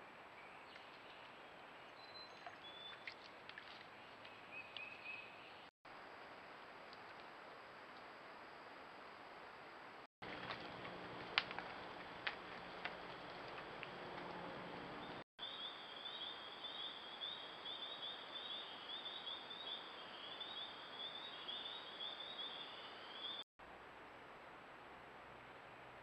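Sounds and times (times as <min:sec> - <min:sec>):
insect chirping call: 0:14.9 - 0:23.4.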